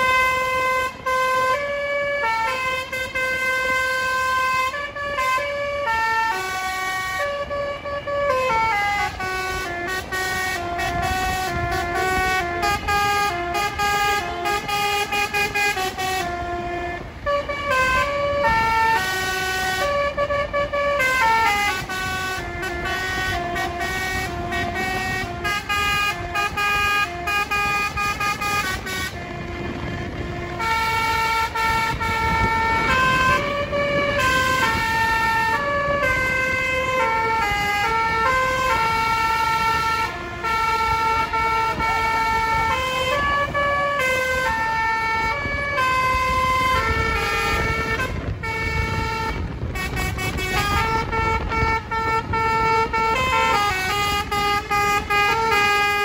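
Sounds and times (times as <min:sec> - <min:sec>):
bus horn playing a tune: 0:00.0 - 0:56.0
bus running: 0:00.0 - 0:56.0.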